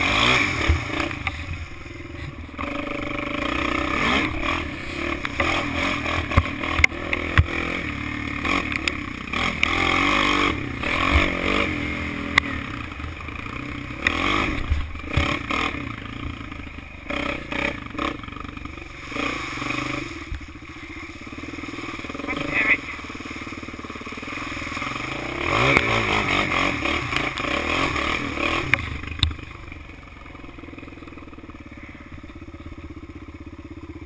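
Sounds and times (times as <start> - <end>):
quad engine revving: 0.0 - 34.0
clatter and knocks over bumps: 5.1 - 7.9.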